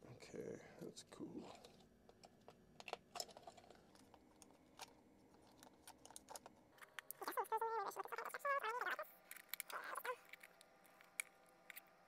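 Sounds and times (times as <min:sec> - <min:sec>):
plastic parts clicking and tapping: 0:01.6 - 0:07.2, 0:09.2 - 0:11.9.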